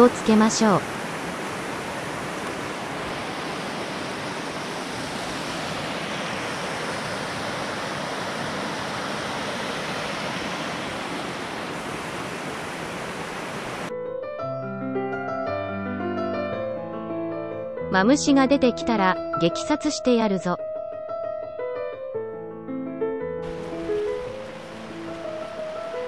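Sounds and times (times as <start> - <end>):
river rushing over stones: 0.0 - 13.9, 23.4 - 26.0
piano-like music: 13.9 - 26.0.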